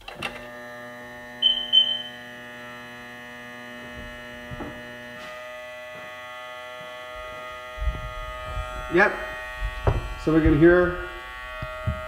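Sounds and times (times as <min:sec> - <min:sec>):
bilge pump humming: 0:00.4 - 0:12.0
short high beeps: 0:01.4 - 0:02.2.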